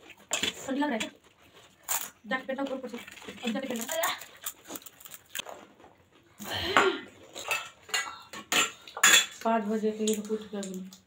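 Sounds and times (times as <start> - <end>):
metal bowls and plates clinking: 6.6 - 10.6.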